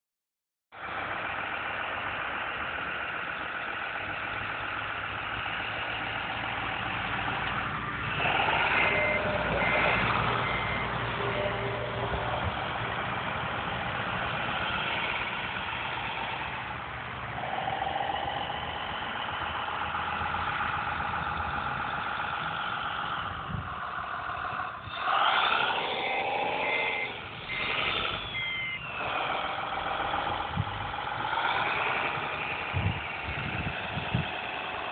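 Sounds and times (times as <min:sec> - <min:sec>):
diesel engine running and revving: 0:00.7 - 0:34.9
reversing beeps: 0:08.2 - 0:12.5, 0:26.5 - 0:30.9.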